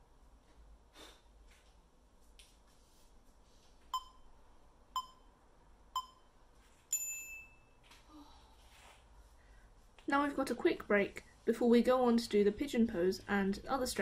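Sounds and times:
short timer beeps: 4.0s - 4.3s, 5.0s - 5.3s, 6.0s - 6.3s.

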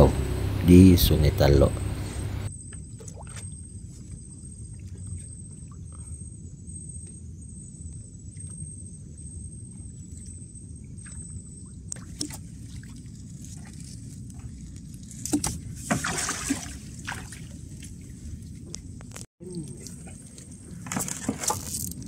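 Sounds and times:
faint high pulsing tone: 0.0s - 2.5s
low rumble: 0.0s - 2.5s.

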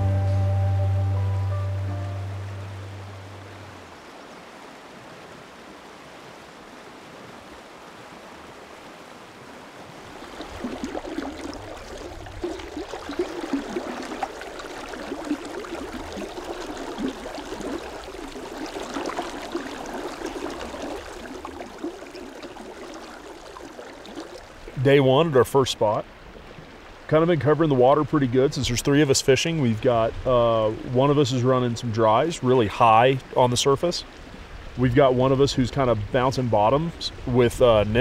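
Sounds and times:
river water rushing: 0.0s - 25.4s.

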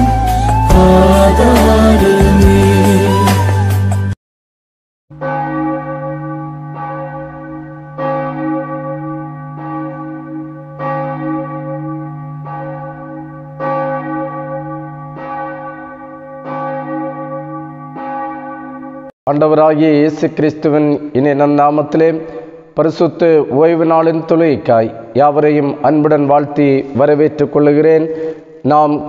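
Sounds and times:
church bell tolling: 5.1s - 28.0s.

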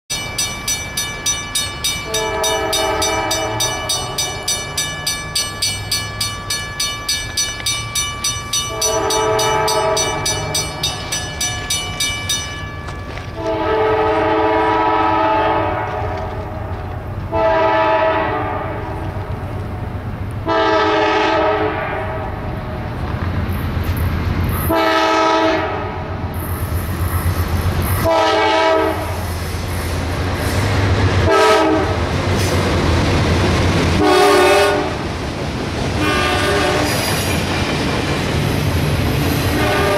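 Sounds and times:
crossing bell ringing: 0.1s - 14.3s
locomotive rumble: 0.2s - 39.9s
locomotive horn blasts: 2.0s - 4.4s, 8.6s - 10.7s, 13.3s - 16.4s, 17.3s - 19.0s, 20.4s - 22.4s, 24.7s - 26.0s, 28.0s - 29.1s, 31.2s - 32.0s, 34.0s - 35.0s, 36.0s - 37.0s, 39.5s - 39.9s.

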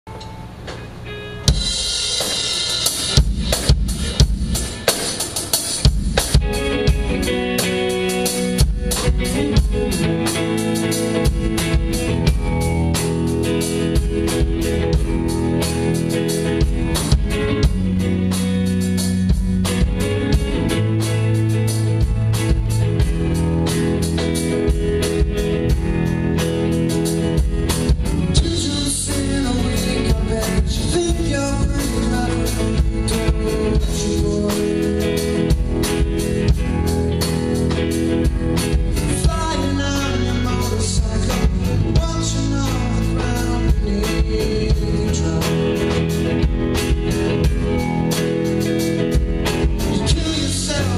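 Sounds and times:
bass guitar: 0.0s - 50.9s
drum kit: 0.1s - 50.9s
electric guitars: 0.1s - 50.9s
man singing lead: 28.2s - 35.6s, 39.0s - 46.2s, 49.8s - 50.9s.

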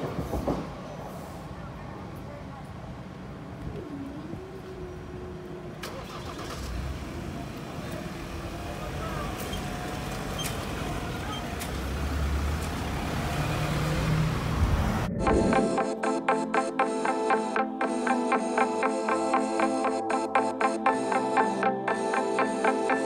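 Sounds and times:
car and van engines pulling away: 4.6s - 15.2s
music: 15.1s - 23.0s.

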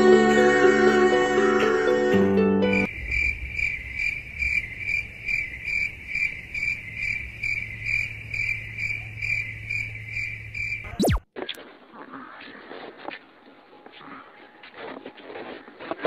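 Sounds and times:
cricket chirping: 2.6s - 11.1s.

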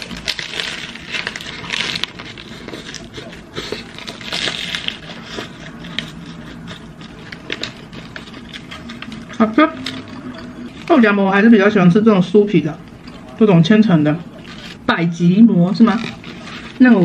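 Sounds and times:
paper wrapper crinkling: 0.0s - 11.5s, 15.7s - 17.0s.

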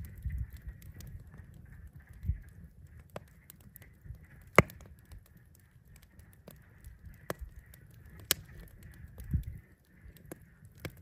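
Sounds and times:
fire popping: 0.0s - 11.0s
wood fire crackling: 0.0s - 11.0s.

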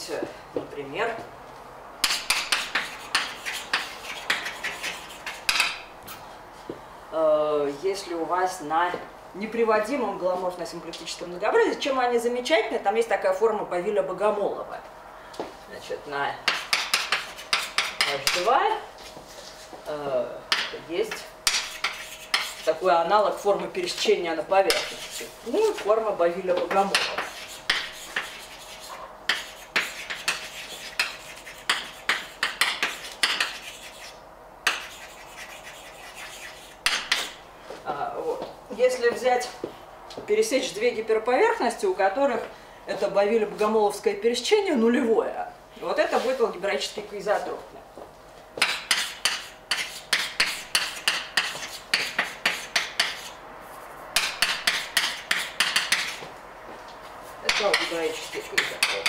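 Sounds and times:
chalk tapping and scratching: 2.0s - 5.8s, 16.5s - 19.8s, 20.5s - 22.8s, 24.7s - 25.9s, 26.6s - 37.4s, 48.6s - 56.4s, 57.4s - 59.0s.

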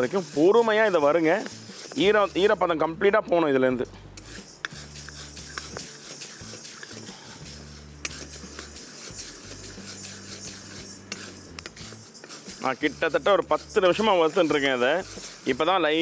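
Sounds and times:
lentils rustling in pan: 4.3s - 16.0s
spatula clicking on steel: 8.0s - 12.7s.

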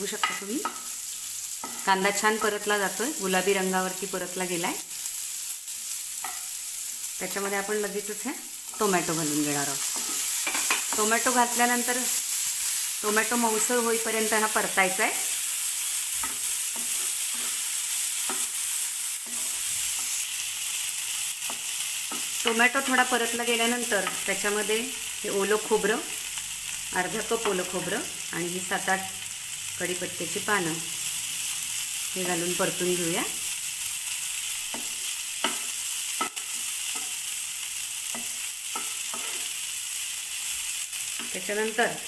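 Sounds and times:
onion and tomato sizzling in pan: 0.0s - 42.0s
spatula scraping a pan: 9.8s - 11.1s, 16.0s - 20.5s, 38.0s - 39.7s
spatula scraping pan: 9.8s - 11.1s, 38.0s - 39.6s.

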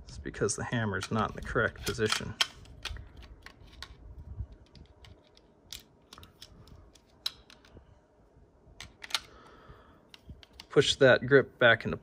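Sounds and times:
pistol parts clicking and knocking: 0.9s - 7.8s, 8.8s - 10.8s.

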